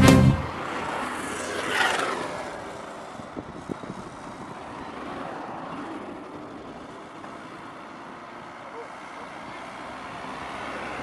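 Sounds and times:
steady low noise: 0:00.0 - 0:00.6.

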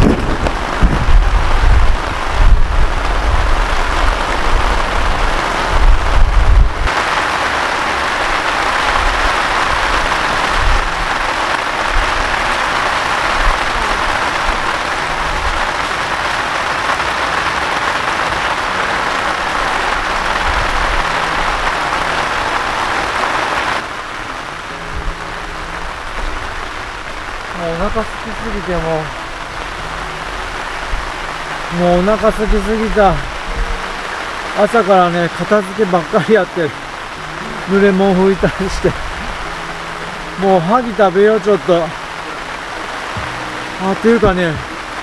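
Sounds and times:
low rumbles: 0:00.0 - 0:07.3
heavy rain on a tent: 0:00.0 - 0:45.0.

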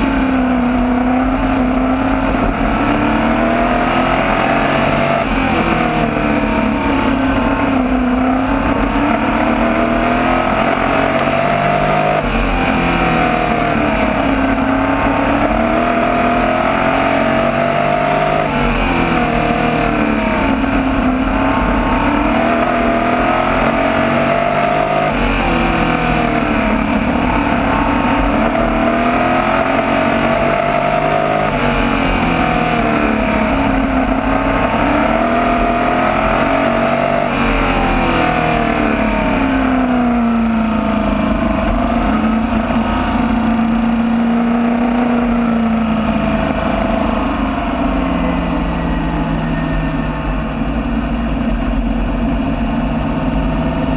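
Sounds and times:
race car engine at high revs: 0:00.0 - 0:53.9.

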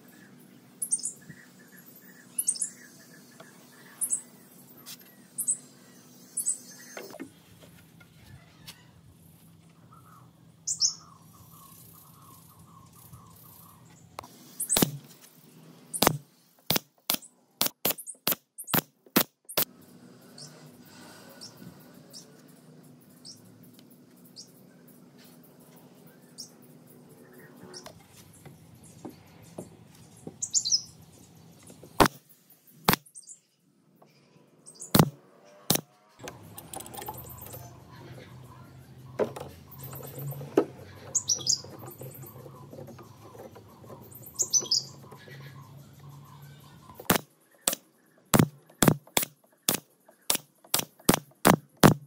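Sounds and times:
birds chirping: 0:00.0 - 0:52.0
nail gun firing into wood: 0:14.7 - 0:15.0, 0:16.0 - 0:19.7, 0:34.9 - 0:35.9, 0:47.0 - 0:52.0.

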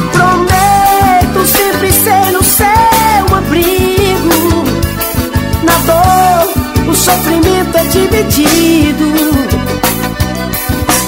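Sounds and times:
bass: 0:00.0 - 0:11.0
lead melody: 0:00.0 - 0:11.0
steady drum beat: 0:00.0 - 0:11.0.

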